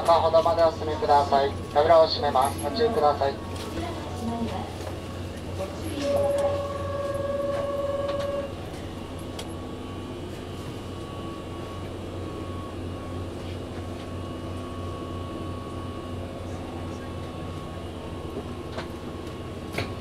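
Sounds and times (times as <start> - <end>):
low train hum: 0.0 - 20.0
electronic warning tone: 5.8 - 8.6.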